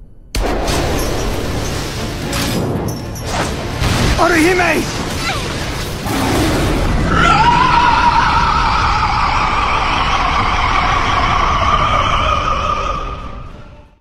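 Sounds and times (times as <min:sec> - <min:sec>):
monster roar: 0:06.0 - 0:13.2.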